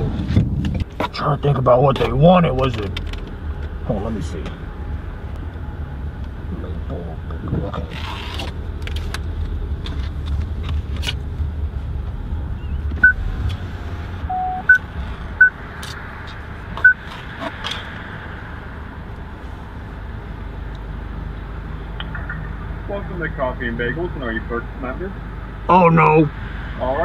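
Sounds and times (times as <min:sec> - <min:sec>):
car engine rumbling: 0:00.0 - 0:27.0
high electronic beeps: 0:14.3 - 0:14.8.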